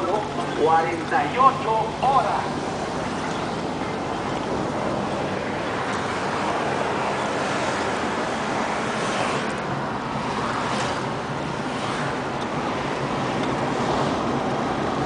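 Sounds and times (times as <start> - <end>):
car engine: 0.0 - 15.0.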